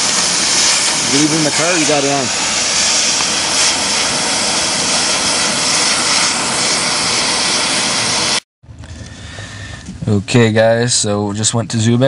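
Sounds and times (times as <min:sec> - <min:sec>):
cutting torch hissing: 0:00.0 - 0:08.4.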